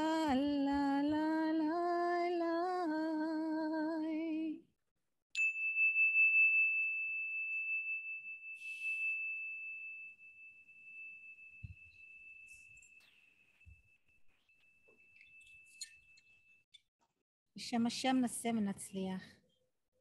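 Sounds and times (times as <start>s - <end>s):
metal chime ringing: 5.4s - 16.6s.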